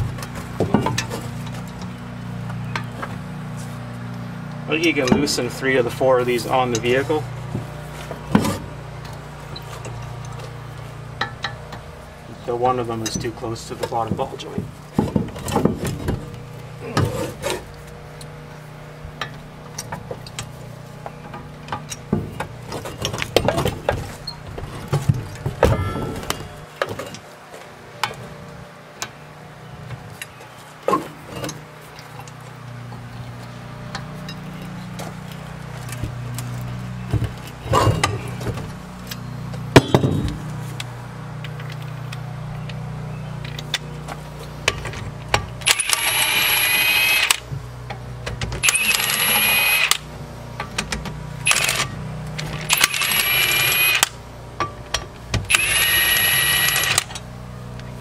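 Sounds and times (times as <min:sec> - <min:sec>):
handheld power tool running: 0:45.6 - 0:47.4, 0:48.6 - 0:50.1, 0:51.4 - 0:54.2, 0:55.5 - 0:57.3.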